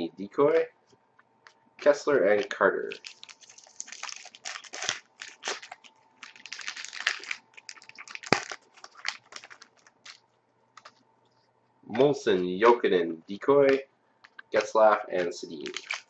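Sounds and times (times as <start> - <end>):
cards rustling: 1.8 - 10.2, 10.8 - 11.0, 13.7 - 16.0
foil pack crinkling and tearing: 2.8 - 10.2, 14.6 - 16.0.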